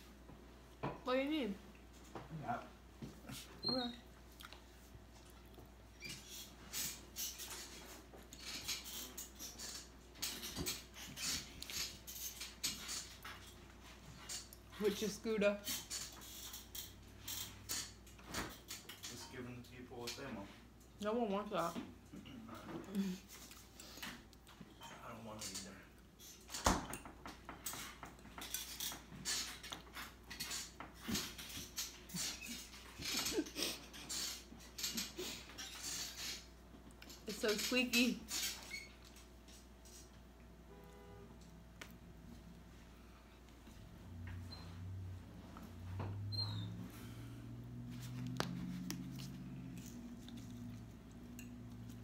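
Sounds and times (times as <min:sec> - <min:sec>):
person chewing pasta: 0:04.2 - 0:05.9, 0:48.4 - 0:52.0.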